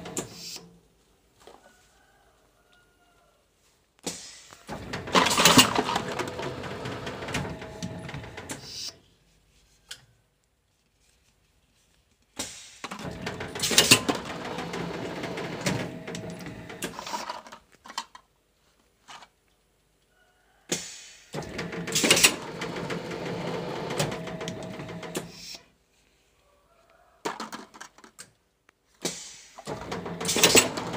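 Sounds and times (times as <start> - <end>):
machine mechanical clatter: 4.7 - 8.7, 12.9 - 17.6, 21.4 - 25.3, 29.7 - 30.9.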